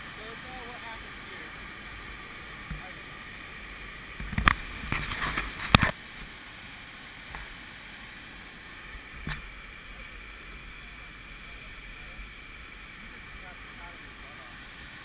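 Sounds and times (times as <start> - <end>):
whitewater rushing hiss: 0.0 - 15.0.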